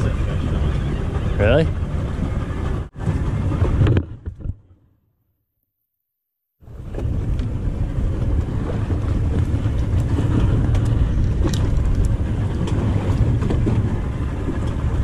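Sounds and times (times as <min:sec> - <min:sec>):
wind buffeting microphone: 0:00.0 - 0:04.7, 0:06.6 - 0:15.0.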